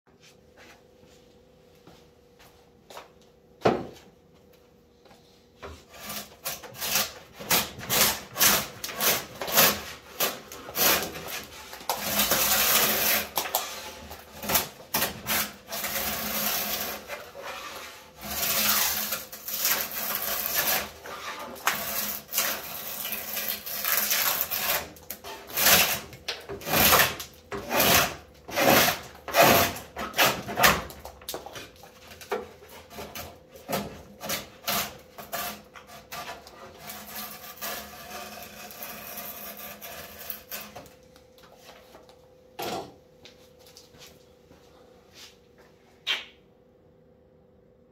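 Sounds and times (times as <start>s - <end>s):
drawknife shaving wood: 5.8s - 30.9s, 32.1s - 41.0s.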